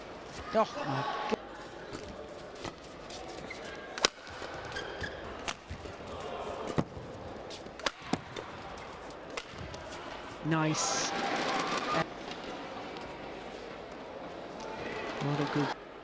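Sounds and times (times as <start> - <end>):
rackets striking shuttlecock: 4.0 - 6.0, 7.8 - 8.6, 9.3 - 9.8.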